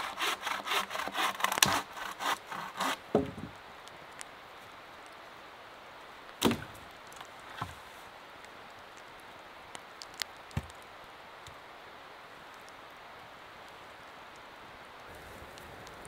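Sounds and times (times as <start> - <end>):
steady rushing hiss: 1.8 - 16.0
wooden pole thump: 3.1 - 3.5, 6.4 - 6.7
twig-like clicks: 8.7 - 11.6.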